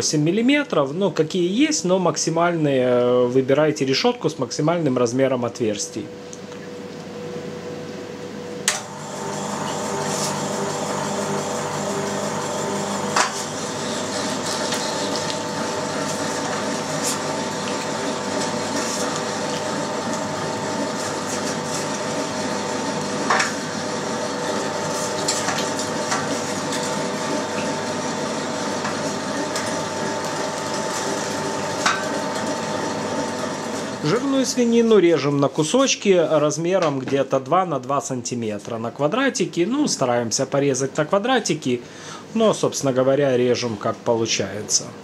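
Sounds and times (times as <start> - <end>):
meat grinder motor hum: 8.5 - 36.5.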